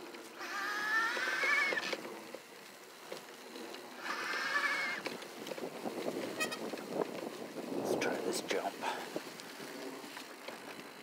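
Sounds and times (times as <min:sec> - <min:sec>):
electric bike motor whining: 0:00.0 - 0:07.8
bike rattling over grass: 0:00.0 - 0:11.0.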